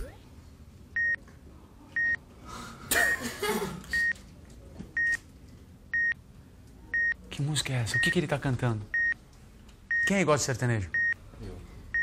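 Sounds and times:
countdown timer beeping: 10.9 - 11.2.

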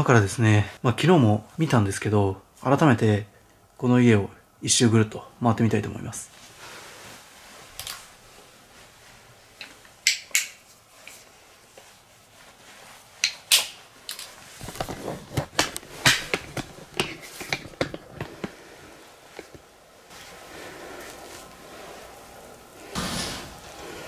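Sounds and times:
knocks and thumps of walking: 14.6 - 20.3.

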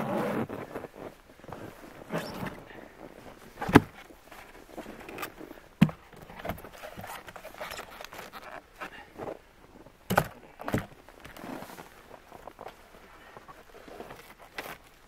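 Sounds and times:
logs knocking into place: 3.6 - 4.0, 5.8 - 7.1, 10.1 - 10.9.

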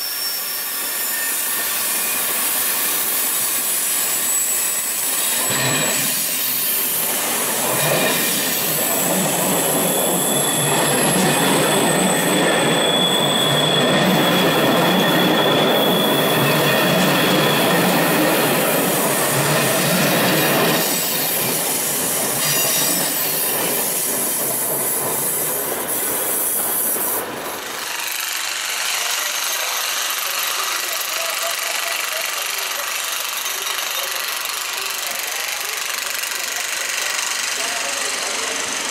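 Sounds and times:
high-pitched wheel squealing: 0.0 - 27.9
train wheels clattering: 1.6 - 28.0.

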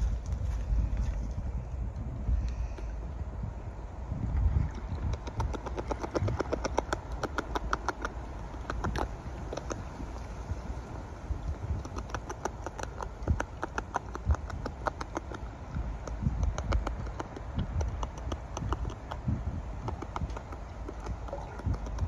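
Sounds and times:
beaver chewing leaves: 4.7 - 22.0.

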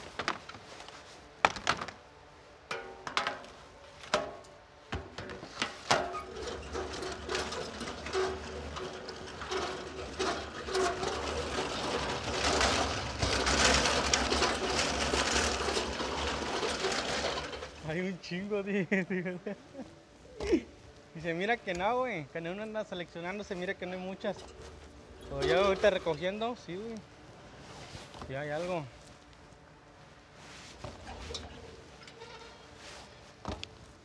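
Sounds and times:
cart rolling over concrete: 5.0 - 18.3, 22.8 - 27.0, 30.8 - 33.9.

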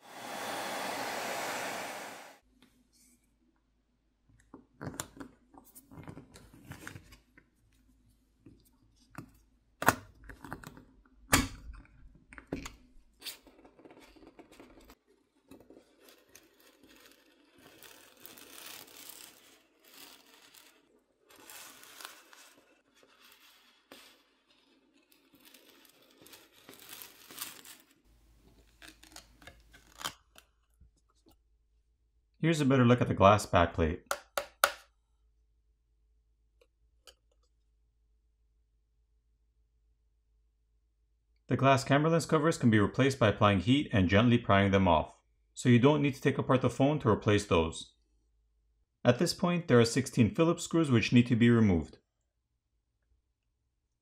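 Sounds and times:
hairdryer blowing: 0.0 - 2.4.

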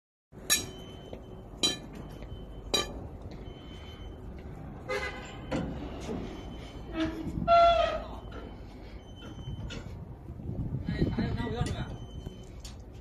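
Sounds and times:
ringing metallic clanks: 0.4 - 3.1.

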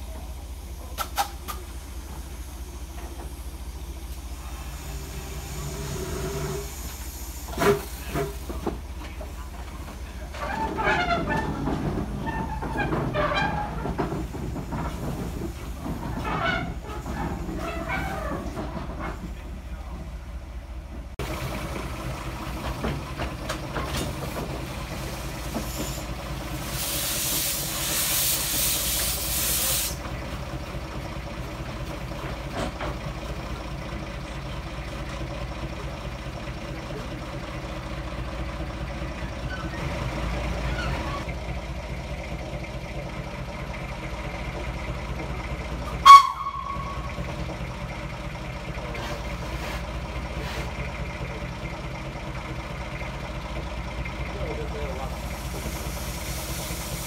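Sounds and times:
low engine rumble: 0.0 - 57.0
steam hissing: 0.6 - 8.8, 24.8 - 30.1, 55.0 - 57.0
steam whistle toot: 46.0 - 47.1.

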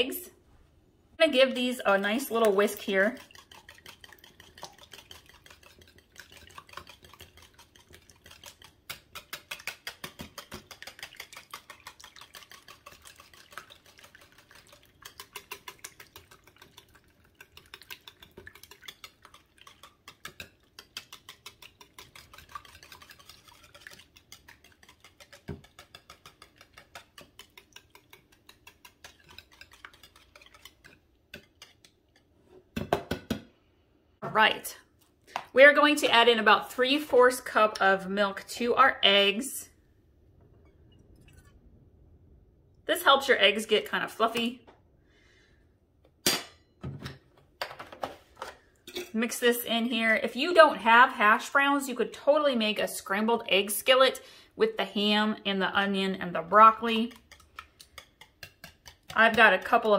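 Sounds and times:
whisk beating eggs in bowl: 1.9 - 32.4, 54.9 - 59.9.

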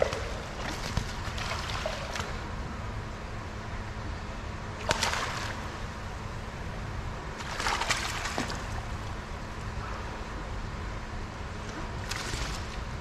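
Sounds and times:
water splashing: 0.0 - 2.4, 4.8 - 5.8, 7.4 - 9.0
low rumble and hum: 0.0 - 13.0.

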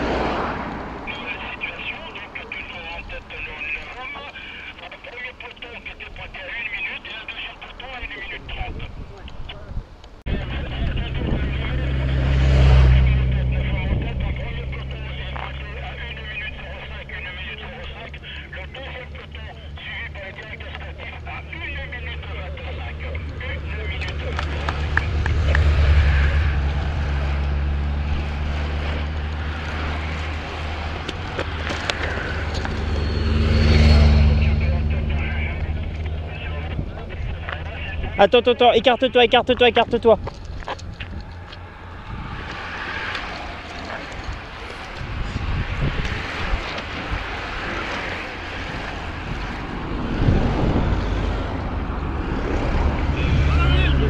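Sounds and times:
tyre noise on asphalt: 0.0 - 2.8, 23.2 - 34.1, 39.8 - 54.0
cyclists rushing past: 0.0 - 54.0
vehicle engines droning: 0.0 - 54.0
wind rushing over microphone: 7.6 - 17.7, 39.2 - 54.0.

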